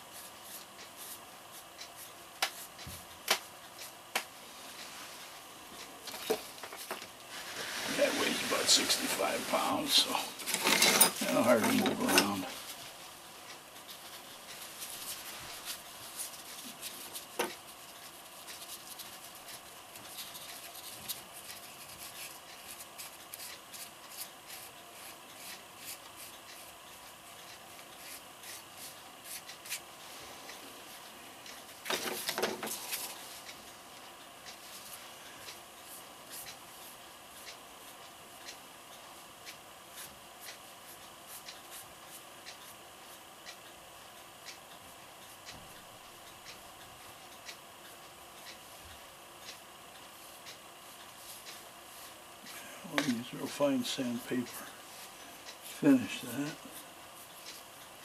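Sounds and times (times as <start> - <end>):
scraping on cement: 7.3 - 9.2.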